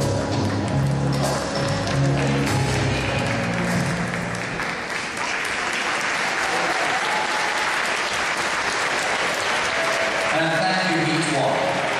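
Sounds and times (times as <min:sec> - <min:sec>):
rumba music: 0:00.0 - 0:04.6
audience applauding: 0:00.4 - 0:11.9.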